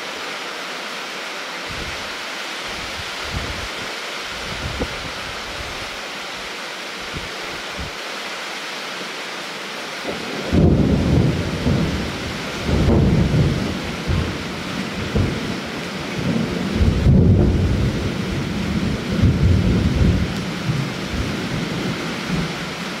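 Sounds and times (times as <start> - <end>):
steady rain hiss: 0.0 - 23.0
low thunder rumbles: 10.1 - 15.6, 16.2 - 22.5.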